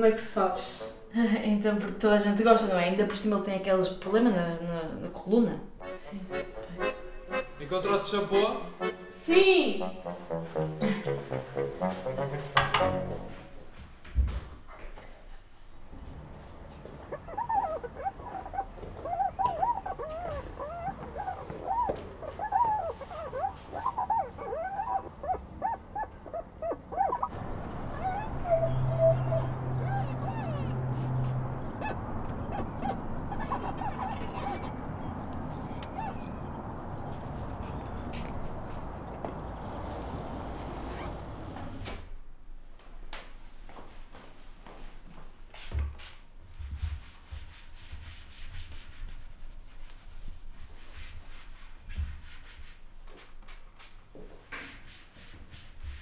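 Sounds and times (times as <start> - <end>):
soft rubbing and rustling: 15.0 - 25.4, 43.4 - 56.0.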